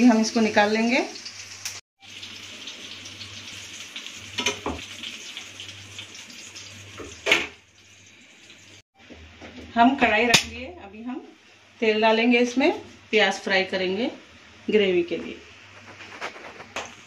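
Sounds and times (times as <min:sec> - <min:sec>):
fish sizzling in hot oil: 0:00.0 - 0:08.8.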